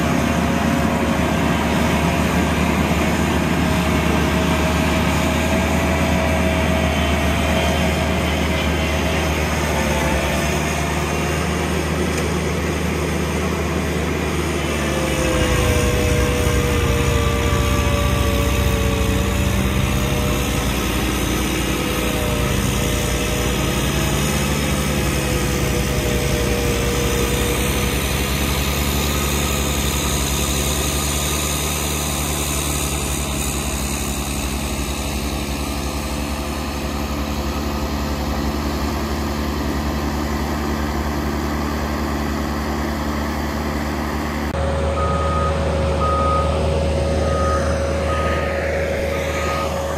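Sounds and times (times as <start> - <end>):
tractor with snowblower running: 0.0 - 49.9
steady tone: 44.6 - 49.9
backup alarm beeping: 45.0 - 46.6, 47.2 - 48.5.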